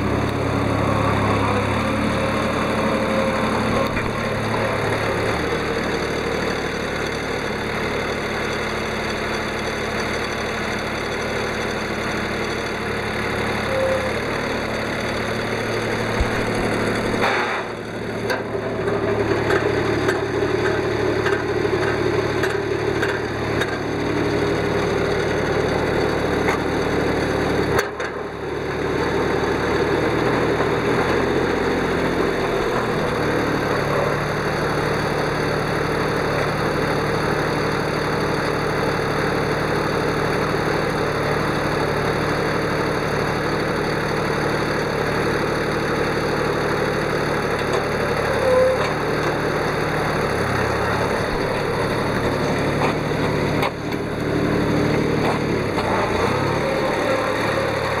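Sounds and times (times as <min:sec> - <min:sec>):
tractor engine running: 0:00.0 - 0:58.0.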